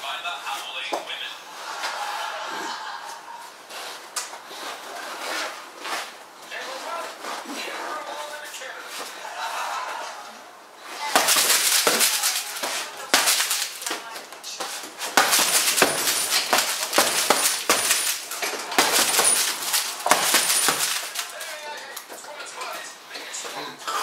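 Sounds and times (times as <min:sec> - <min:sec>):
gloves punching heavy bag: 0:11.1 - 0:21.5.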